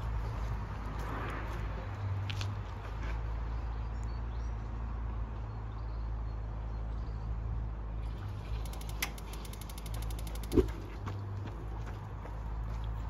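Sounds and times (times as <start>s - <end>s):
low outdoor rumble: 6.6s - 13.0s
rapid even ticking: 8.1s - 10.9s.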